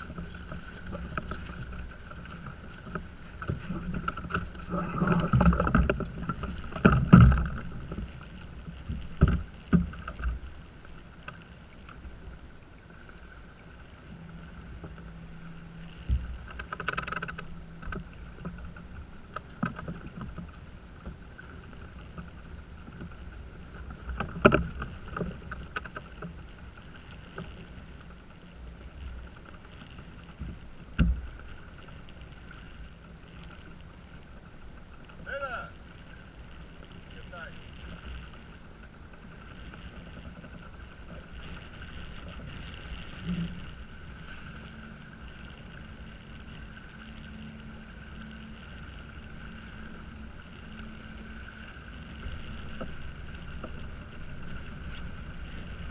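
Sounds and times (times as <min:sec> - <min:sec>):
boat knocking and thumping: 0:00.0 - 0:08.1, 0:08.7 - 0:10.4, 0:23.9 - 0:26.4, 0:30.3 - 0:31.5
water rushing: 0:00.0 - 0:55.9
wind: 0:00.0 - 0:55.9.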